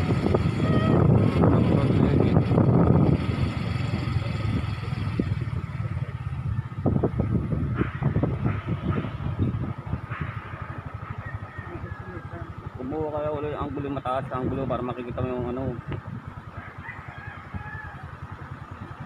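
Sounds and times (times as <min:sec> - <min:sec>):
wind on microphone: 0:00.0 - 0:12.8
vehicle engine running: 0:00.0 - 0:19.0.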